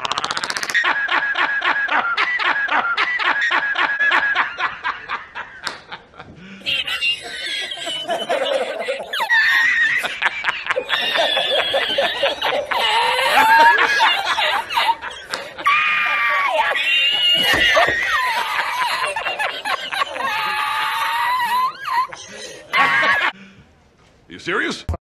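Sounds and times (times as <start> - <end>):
man laughing hard: 0.7 - 23.4
man's high sliding laugh: 6.2 - 23.3.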